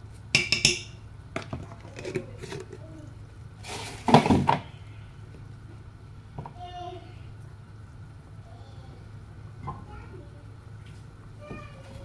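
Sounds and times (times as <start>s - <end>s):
kitchenware clattering: 0.4s - 2.8s
kitchenware clinking: 0.4s - 2.8s.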